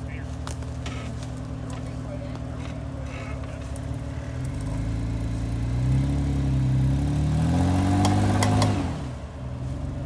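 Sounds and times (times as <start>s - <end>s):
engine revving under load: 2.6s - 10.0s.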